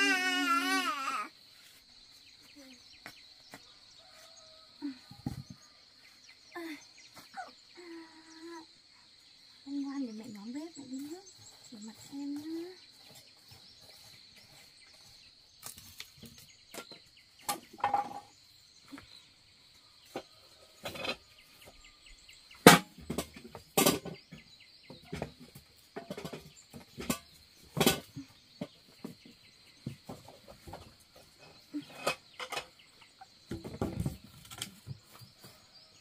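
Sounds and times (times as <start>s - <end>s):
firewood knocking and clattering: 15.7s - 18.3s.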